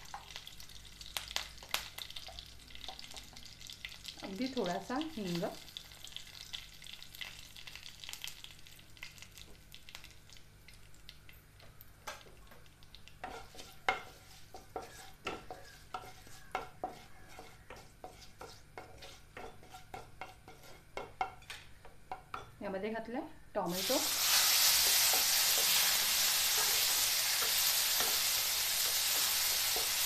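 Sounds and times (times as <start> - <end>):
spices sizzling in hot oil: 0.0 - 21.5, 23.6 - 30.0.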